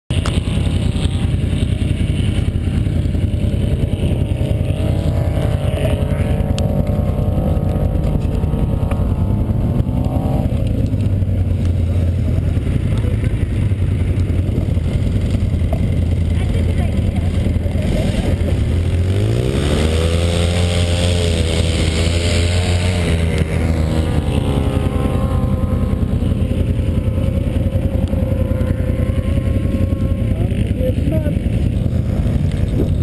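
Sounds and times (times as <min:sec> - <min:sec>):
atv engine revving: 0:00.1 - 0:33.0
wind noise on microphone: 0:31.8 - 0:33.0.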